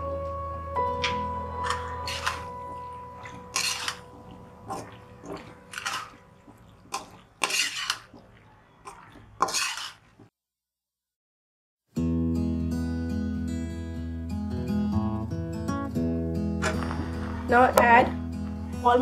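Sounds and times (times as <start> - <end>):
metal spatula scraping wok: 1.6 - 6.3, 6.9 - 10.2.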